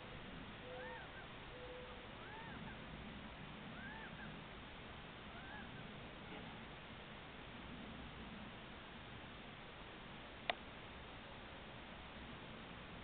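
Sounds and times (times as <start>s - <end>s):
background hiss: 0.0s - 13.0s
faint animal calls: 0.6s - 4.5s, 5.2s - 6.7s.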